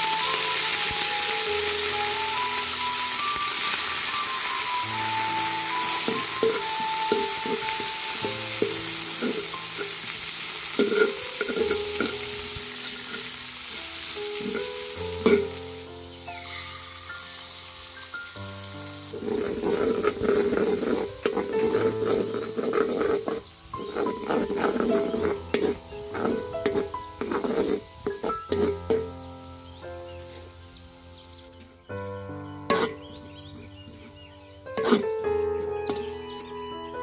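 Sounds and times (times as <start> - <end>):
oil sizzling in a wok: 0.0 - 36.5
spatula scraping and knocking pan: 5.0 - 15.8, 19.1 - 29.3, 32.6 - 36.4.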